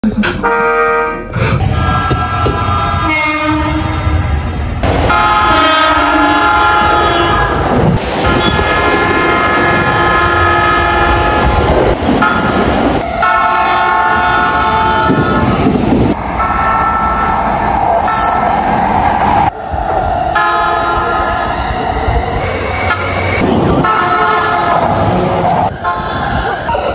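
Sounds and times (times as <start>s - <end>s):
train running noise: 0.0s - 26.9s
train horn blasts: 0.4s - 1.3s, 2.6s - 4.2s, 5.1s - 7.6s, 8.2s - 15.7s, 20.4s - 21.2s, 22.9s - 25.0s.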